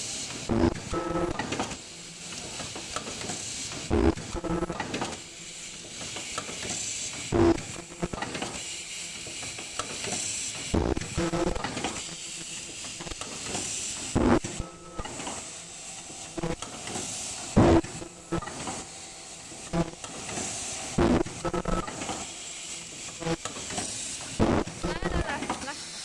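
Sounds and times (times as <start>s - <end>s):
pneumatic air hiss: 0.0s - 0.5s, 1.4s - 4.0s, 4.8s - 24.8s, 25.5s - 26.0s
machine thumping: 16.6s - 18.8s.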